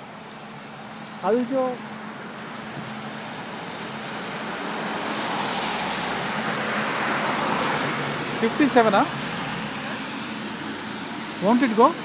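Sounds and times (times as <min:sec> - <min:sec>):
passing vehicle: 0:00.0 - 0:12.0.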